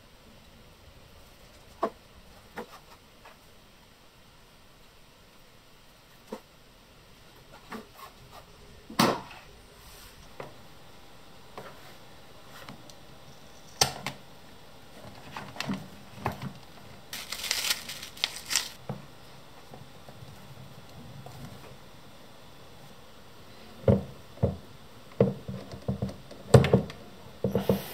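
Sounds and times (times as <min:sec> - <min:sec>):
rustling and scraping: 0:15.0 - 0:18.8.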